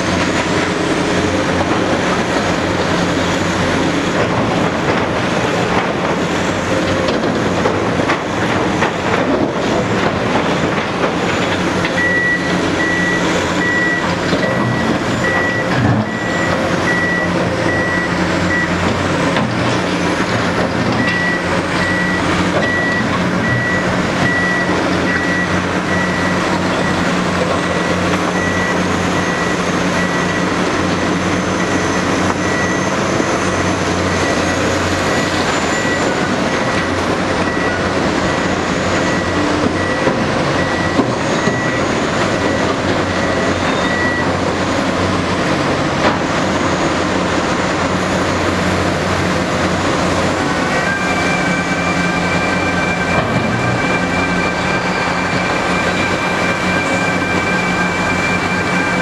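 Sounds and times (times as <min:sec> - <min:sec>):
heavy machinery engines running: 0:00.0 - 0:59.0
reversing alarm beeping: 0:11.2 - 0:45.0, 0:49.4 - 0:59.0.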